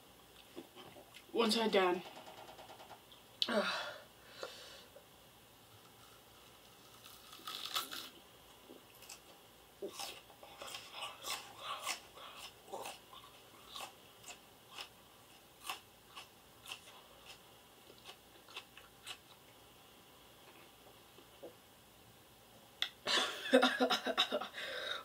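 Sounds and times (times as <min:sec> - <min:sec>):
person crunching raw onion: 0:05.8 - 0:19.4.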